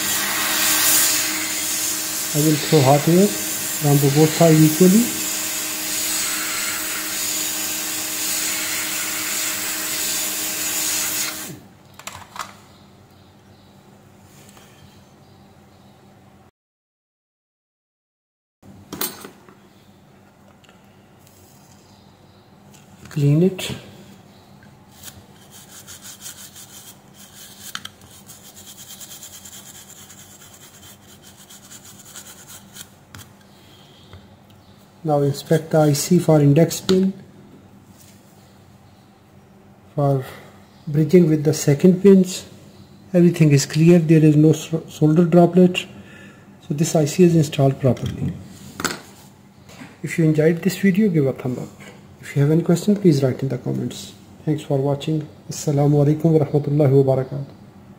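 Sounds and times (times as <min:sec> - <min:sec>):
hot air blower hissing: 0:00.0 - 0:11.7
toothbrush scrubbing circuit board: 0:25.0 - 0:32.9.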